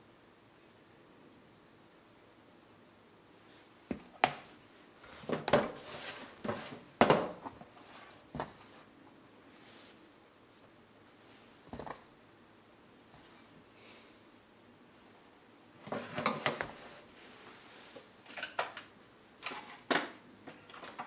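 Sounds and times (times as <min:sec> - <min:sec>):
plastic scoop knocking and scraping: 0:05.1 - 0:07.6.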